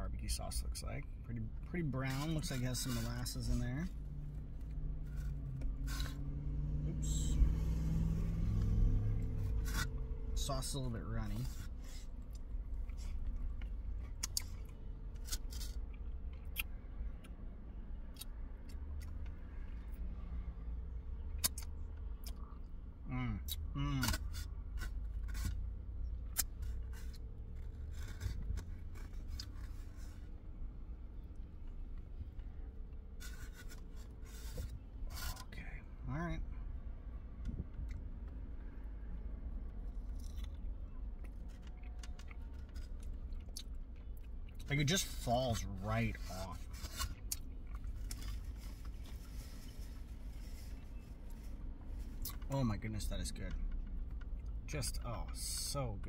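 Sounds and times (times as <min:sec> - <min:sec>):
low steady rumble: 0:00.0 - 0:56.0
person chewing: 0:11.6 - 0:17.4, 0:21.4 - 0:22.7, 0:39.9 - 0:45.2, 0:46.7 - 0:49.8.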